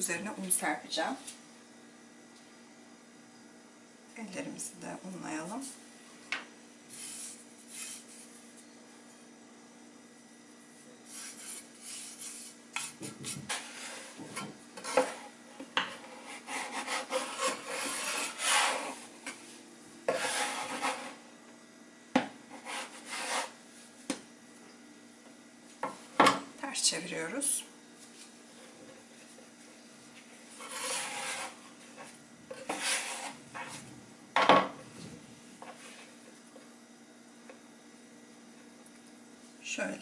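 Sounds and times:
metal scraper scraping wooden board: 14.8 - 15.3, 15.9 - 19.0, 20.1 - 21.2, 22.5 - 23.6, 30.6 - 31.6, 32.6 - 33.7.

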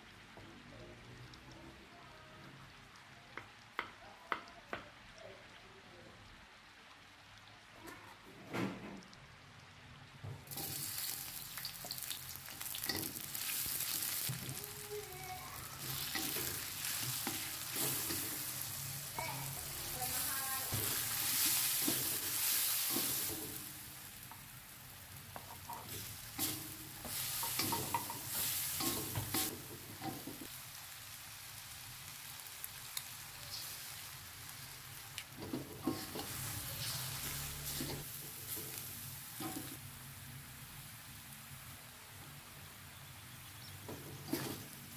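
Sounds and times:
food sizzling in hot oil: 10.2 - 44.9
spatula scraping and knocking pan: 25.4 - 30.5, 35.4 - 38.8, 43.9 - 44.8.

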